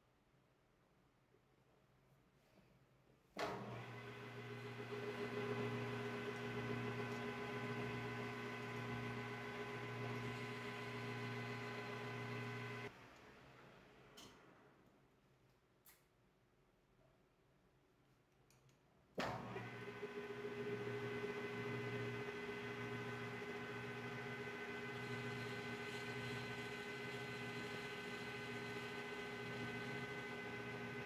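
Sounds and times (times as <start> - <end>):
lathe tool cutting workpiece: 4.0 - 12.9, 19.5 - 31.0
metal lathe running: 4.5 - 12.9, 19.6 - 31.0.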